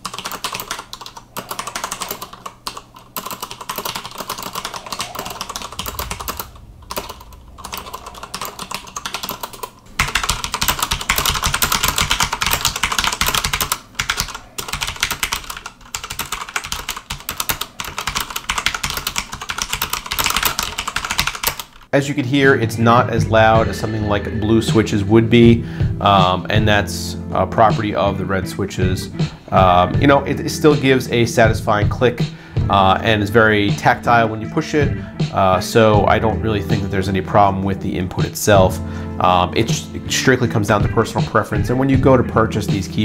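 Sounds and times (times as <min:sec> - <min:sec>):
fast typing on mechanical keyboard: 0:00.0 - 0:21.9.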